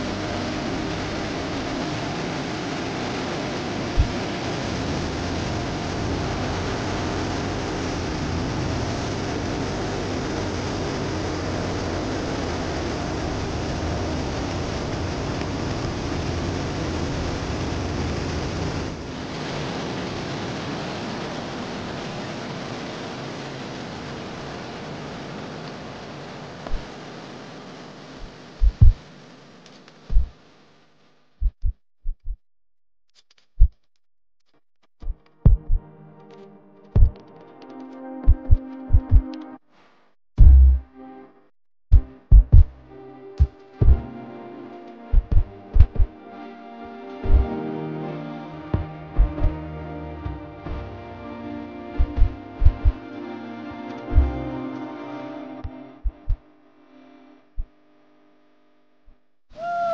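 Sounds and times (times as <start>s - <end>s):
rush of falling water: 0.0s - 29.1s
deep bass thumps of music: 4.0s - 4.2s, 28.6s - 29.0s, 35.0s - 35.8s, 37.0s - 37.2s, 38.2s - 39.3s, 40.4s - 41.0s, 41.9s - 44.1s, 45.1s - 46.2s, 47.2s - 47.6s, 48.8s - 51.2s, 51.9s - 53.0s, 54.0s - 54.6s, 55.6s - 56.4s.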